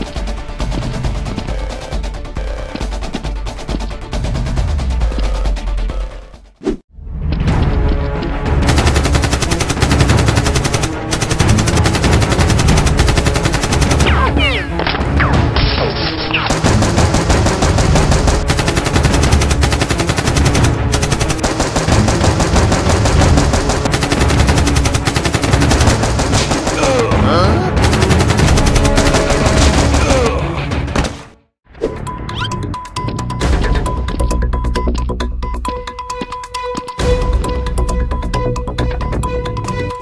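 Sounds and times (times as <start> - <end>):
automatic gunfire: 8.6 - 14.2, 16.5 - 27.1, 27.8 - 30.0.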